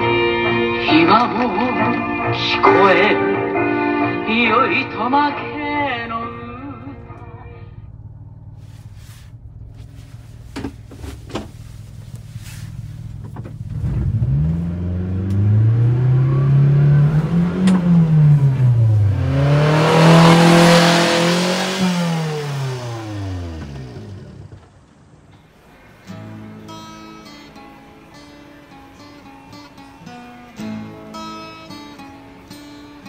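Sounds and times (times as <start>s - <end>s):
truck engine driving past: 3.3s - 33.0s
tyre noise: 6.4s - 25.1s.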